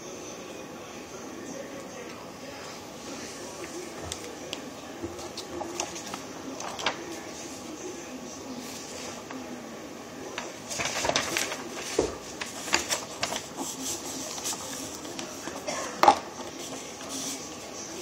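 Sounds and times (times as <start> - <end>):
paper rustling and scraping: 5.0 - 7.9, 8.5 - 9.5, 10.3 - 18.0.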